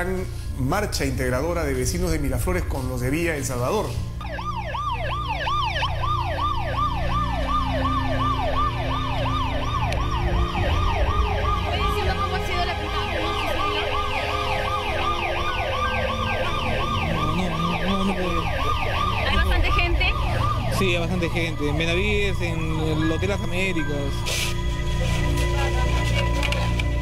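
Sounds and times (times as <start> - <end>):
second siren: 3.7 - 26.5
siren yelping: 4.0 - 26.9
low rumble: 9.8 - 13.2, 15.6 - 23.8.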